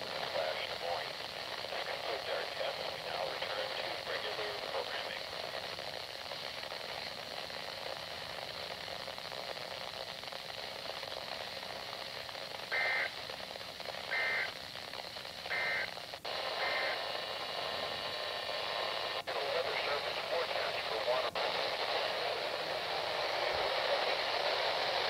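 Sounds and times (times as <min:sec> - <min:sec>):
radio static hiss: 0:00.0 - 0:25.0
two-tone data bursts: 0:12.7 - 0:13.2, 0:14.0 - 0:14.6, 0:15.4 - 0:17.1.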